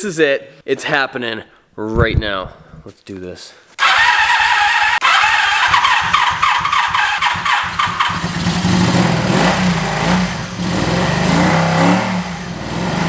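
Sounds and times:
motorcycle engine cranking and running: 3.8s - 13.0s.

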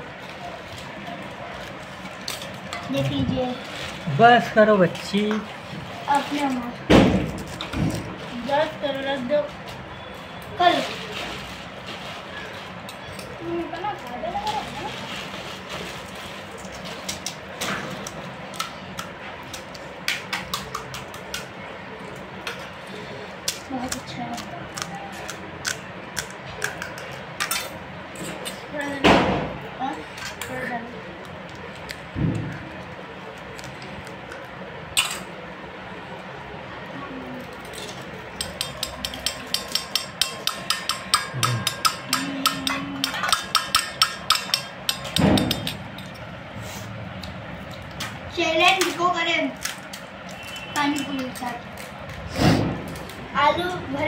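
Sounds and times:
crisp puris cracking: 31.1s - 34.8s
steel spoons and bowls clinking: 37.6s - 46.2s.

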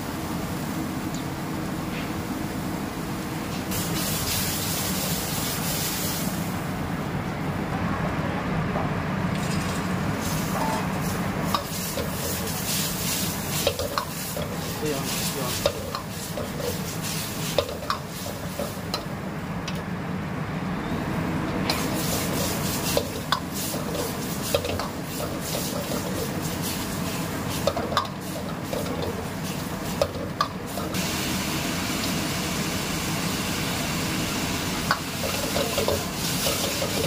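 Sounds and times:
food sizzling: 3.3s - 6.7s, 10.1s - 19.2s, 21.7s - 37.0s
ladle scraping wok: 21.7s - 31.0s, 35.2s - 37.0s.

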